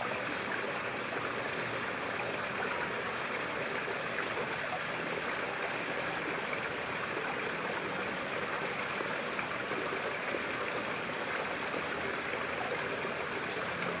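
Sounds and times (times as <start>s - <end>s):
running water: 0.0s - 14.0s.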